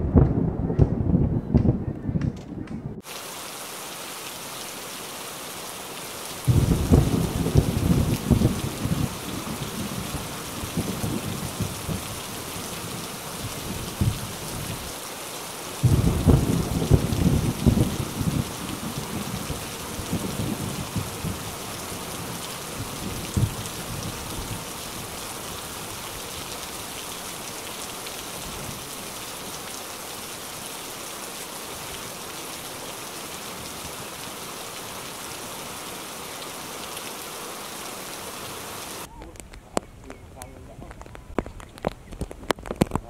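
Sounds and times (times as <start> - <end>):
low rumble: 0.0 - 3.0
heavy rain on leaves: 3.0 - 43.0.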